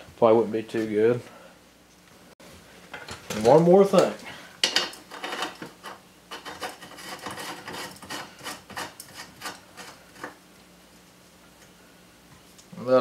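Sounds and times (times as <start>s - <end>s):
metal scraping and rubbing: 4.9s - 10.4s.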